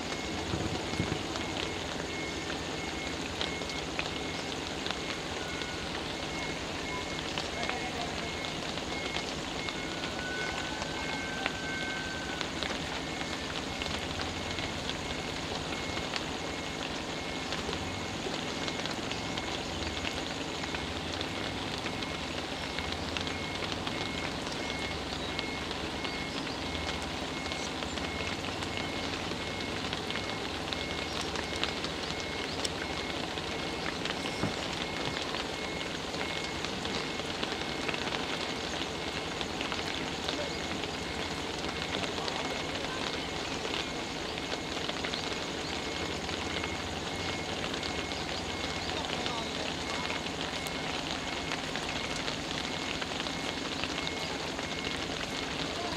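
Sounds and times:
rain on wet road: 0.0 - 55.9.

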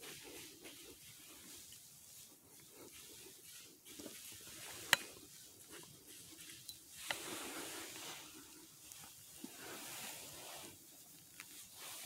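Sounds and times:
footsteps crunching dry leaves: 0.0 - 10.9.

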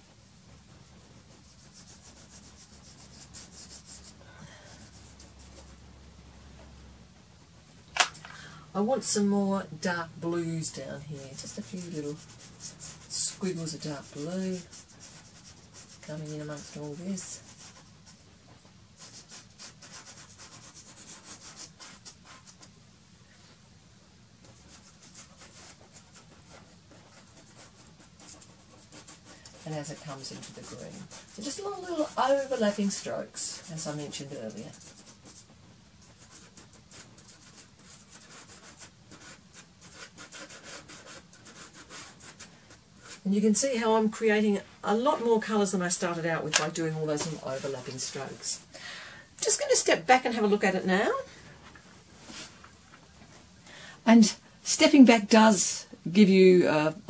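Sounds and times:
pastel stick scratching paper: 0.4 - 4.2, 10.7 - 18.3, 19.0 - 22.7, 24.4 - 48.6.

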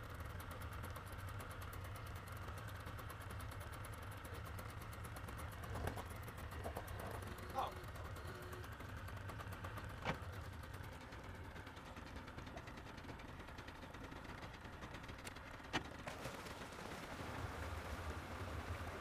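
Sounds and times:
electric trolling motor humming: 0.0 - 19.0.

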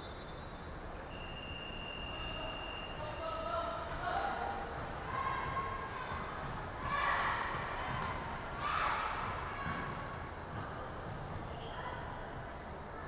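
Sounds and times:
low rumble of basketball play: 3.0 - 13.0.

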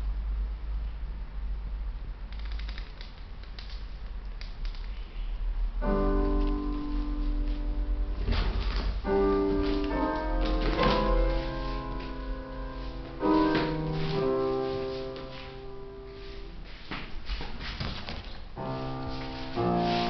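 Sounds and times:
piano music: 5.8 - 16.9, 18.5 - 20.0.

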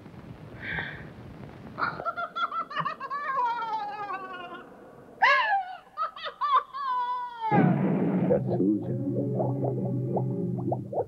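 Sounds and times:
quavering laugh-like cry: 1.8 - 7.5.

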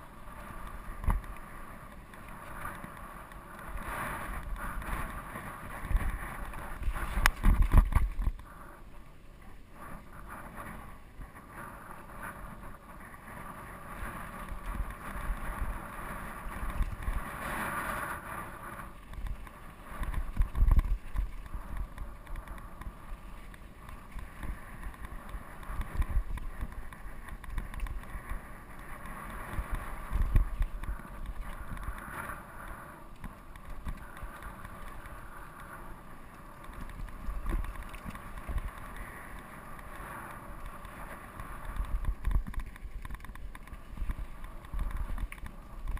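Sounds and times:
bike rattling over bumps: 0.0 - 8.5, 9.7 - 45.9
wind buffeting microphone: 0.0 - 8.7, 9.5 - 45.9
bike tyres rolling on dirt: 0.0 - 45.9.

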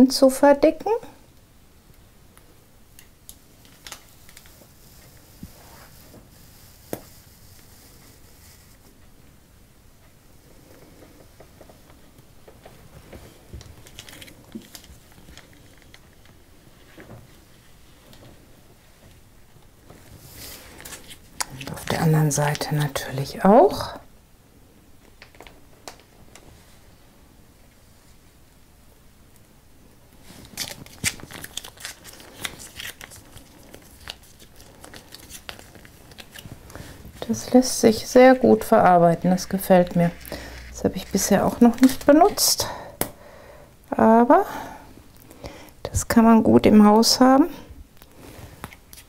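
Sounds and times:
plastic pouch rustling and clicking: 3.0 - 4.7, 13.6 - 16.4, 30.3 - 37.6, 39.3 - 42.4.

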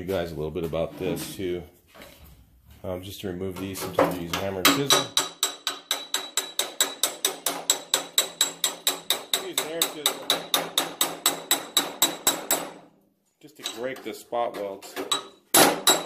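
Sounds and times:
hammer striking chisel on metal: 4.3 - 12.8, 14.6 - 16.0.

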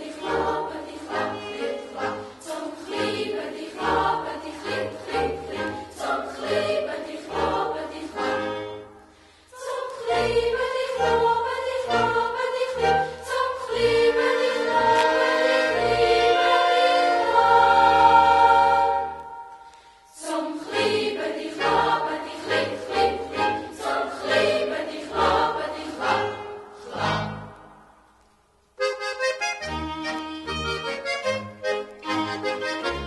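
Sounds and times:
choir singing in parts: 0.0 - 27.8.

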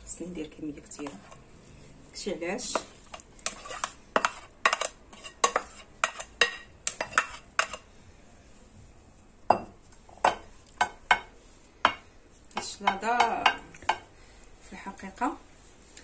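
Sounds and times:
spatula scraping a plate: 2.6 - 7.9.

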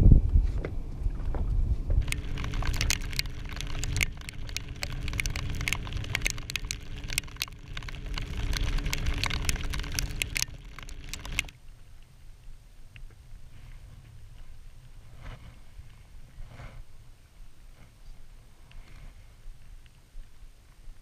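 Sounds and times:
steady low hum: 0.0 - 13.5
rain drops tapping on housing: 2.0 - 11.5.

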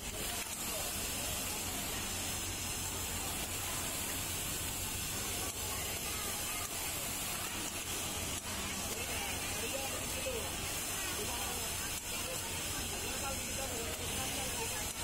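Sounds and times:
factory machinery hiss and hum: 0.0 - 15.0.

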